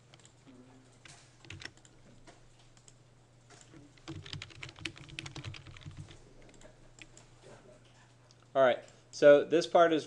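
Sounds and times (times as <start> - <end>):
computer keyboard typing: 1.0 - 2.0, 3.8 - 7.3.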